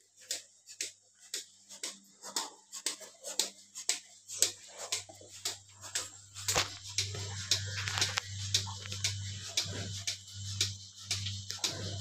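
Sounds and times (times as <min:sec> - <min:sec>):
milking pulsator clicking and hissing: 0:00.0 - 0:12.0
low machine hum: 0:04.2 - 0:12.0.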